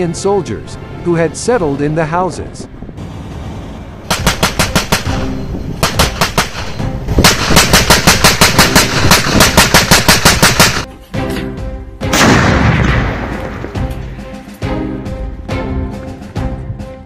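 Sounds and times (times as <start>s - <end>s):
automatic gunfire bursts: 4.1s - 5.2s, 5.8s - 10.9s.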